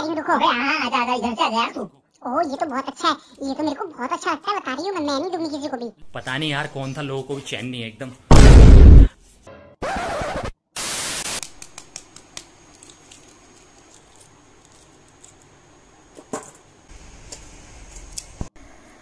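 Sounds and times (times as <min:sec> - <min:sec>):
loud bursts of noise: 0:08.3 - 0:09.1
eggshells cracking while peeled: 0:11.4 - 0:15.8.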